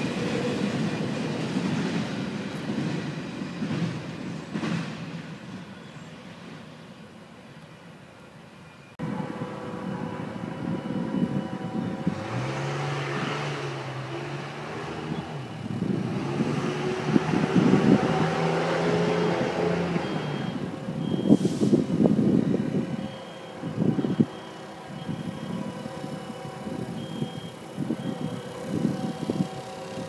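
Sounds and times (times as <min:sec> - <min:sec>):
engine humming: 0:09.0 - 0:30.0.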